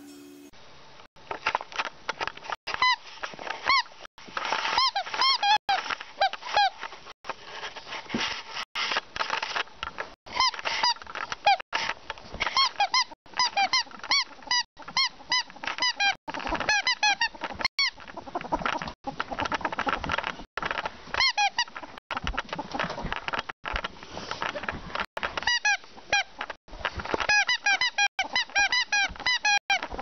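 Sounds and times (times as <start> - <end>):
ferret dooking: 12.6 - 20.3.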